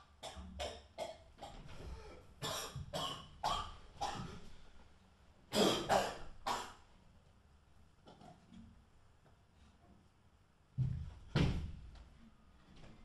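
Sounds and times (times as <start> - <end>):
man coughing hard: 2.4 - 4.4, 5.5 - 6.8.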